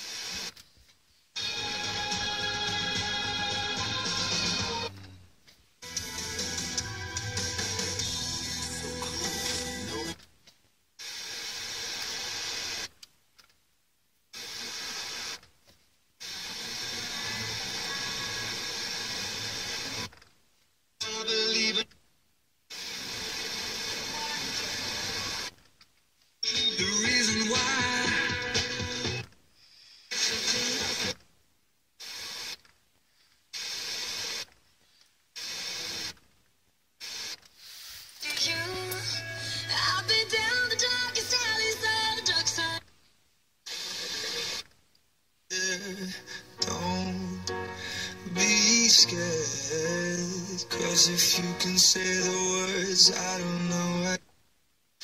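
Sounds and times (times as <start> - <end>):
hissy radio reception: 0.0 - 4.9, 5.8 - 10.3, 11.0 - 13.0, 14.3 - 15.4, 16.2 - 20.2, 22.7 - 25.6, 26.4 - 31.2, 32.0 - 32.6, 33.5 - 34.5, 35.3 - 36.2, 37.0 - 42.8, 43.6 - 44.7, 45.5 - 54.2.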